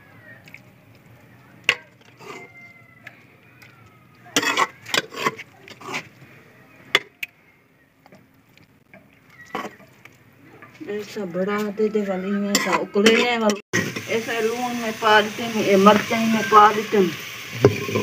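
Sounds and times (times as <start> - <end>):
metal spoon clinking on pot: 4.4 - 5.4.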